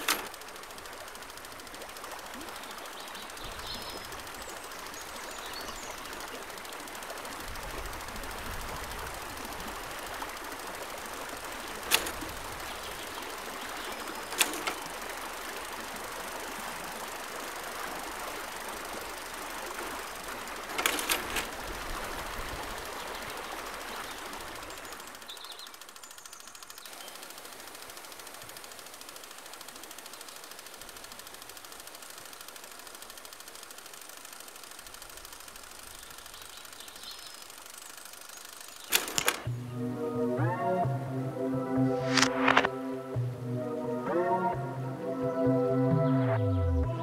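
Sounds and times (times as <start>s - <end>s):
sharp clicks: 0.0s - 39.6s, 42.0s - 42.7s
faint bird chirps: 2.4s - 6.7s, 22.8s - 27.4s, 35.8s - 38.9s
river rushing: 6.0s - 25.2s.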